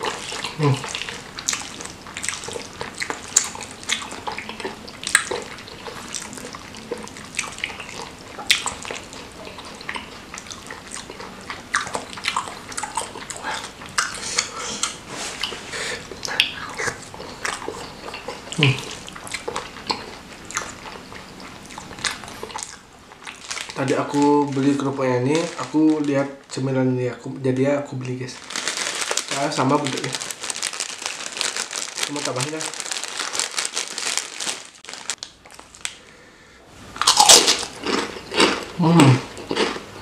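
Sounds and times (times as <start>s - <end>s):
wet chewing and slurping: 0.0s - 25.8s
mouth smacks and clicks: 7.0s - 22.8s.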